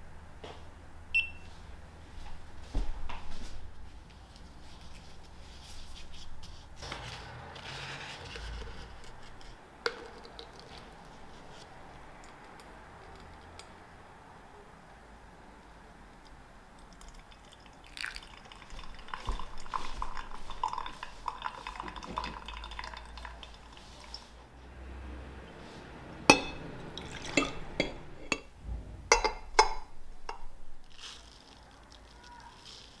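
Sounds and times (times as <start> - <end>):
hot water pouring onto paper filter: 17.0 - 24.3
dripper clinking against glass: 26.3 - 28.5.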